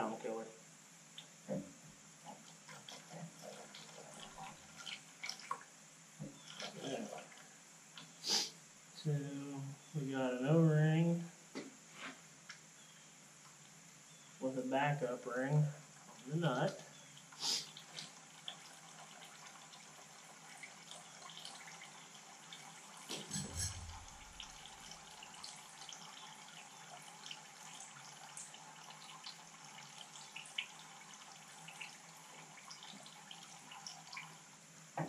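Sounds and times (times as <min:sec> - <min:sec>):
steady low hiss: 0:00.0 - 0:18.4, 0:22.8 - 0:25.9, 0:29.6 - 0:35.0.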